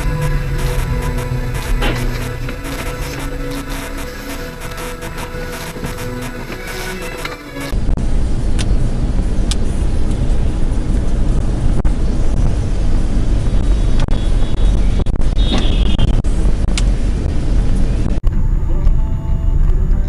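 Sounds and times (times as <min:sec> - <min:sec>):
brief high tone: 0:00.0 - 0:07.7
car interior rumble: 0:00.0 - 0:20.0.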